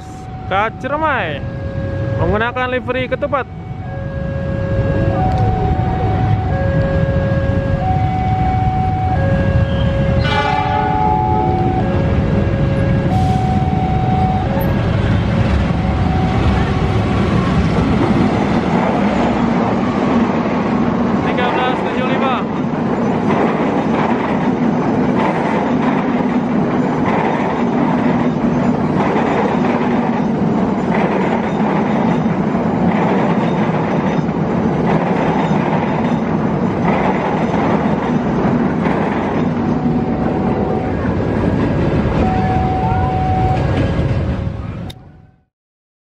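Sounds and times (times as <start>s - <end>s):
train carriages rumbling on rails: 0.0s - 45.3s
wheels beating over track: 10.1s - 45.0s.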